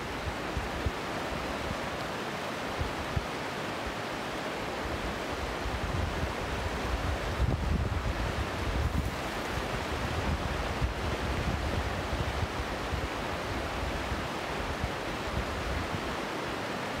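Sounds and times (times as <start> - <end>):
river rushing over rocks: 0.0 - 17.0
wind buffeting microphone: 5.6 - 16.0.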